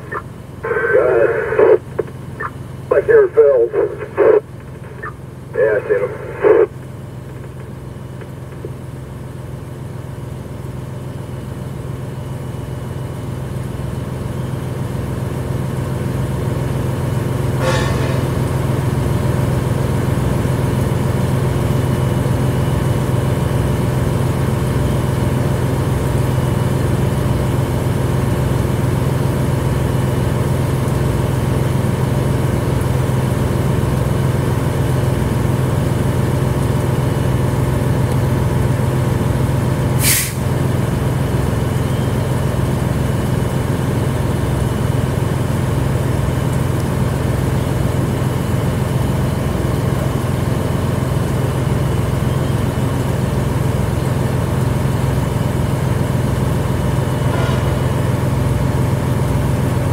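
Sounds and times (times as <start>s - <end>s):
fire engine running: 0.0s - 59.9s
brief sharp sound: 17.6s - 18.6s.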